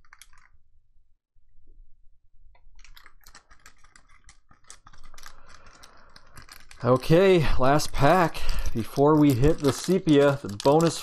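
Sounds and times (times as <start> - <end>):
foil wrapper crinkling and tearing: 6.6 - 11.0.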